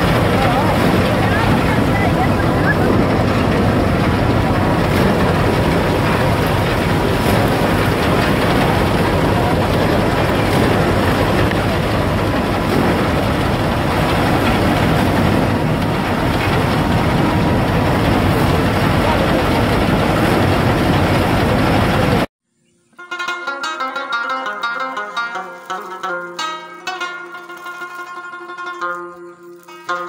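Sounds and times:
thresher and diesel engine running: 0.0 - 22.3.

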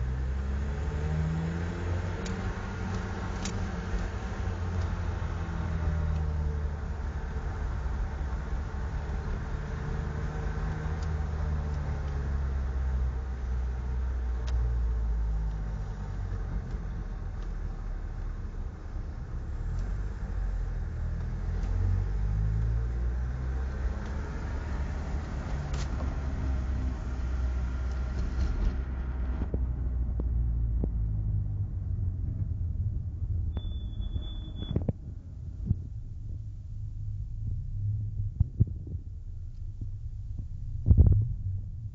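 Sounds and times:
motorcycle engine and road rumble: 0.0 - 41.9
high beep: 33.5 - 34.8.

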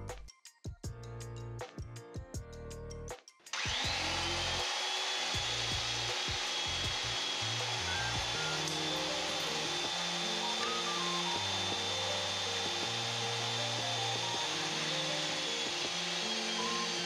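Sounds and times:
background music: 0.0 - 17.0
pipe threading machine whining: 3.6 - 17.0.

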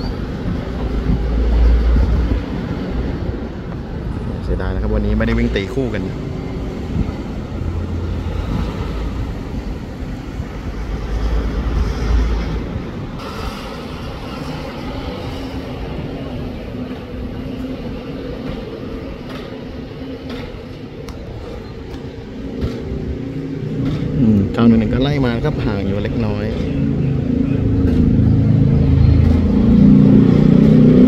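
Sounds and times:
cars passing: 0.0 - 31.0
low rumble: 21.3 - 31.0
motorcycles passing: 22.0 - 31.0.

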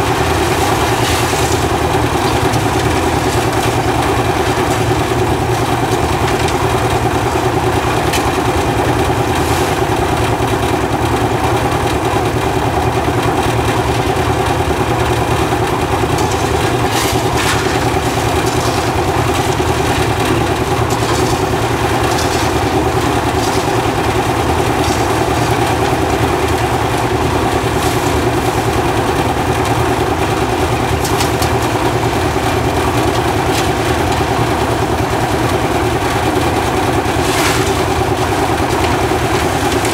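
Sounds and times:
material rattling in drum: 0.0 - 11.6, 13.3 - 35.4, 36.3 - 39.9
concrete mixer engine running: 0.0 - 39.9.

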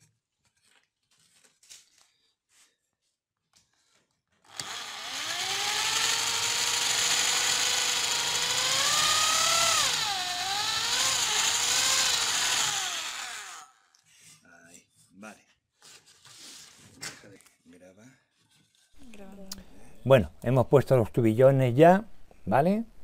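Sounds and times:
electric drill boring into wood: 4.4 - 14.0.

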